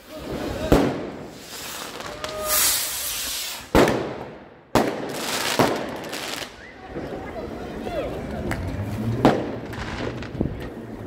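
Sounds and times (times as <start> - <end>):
fireworks crackling hiss: 0.0 - 6.5
fireworks bangs: 0.1 - 7.3, 8.4 - 10.8.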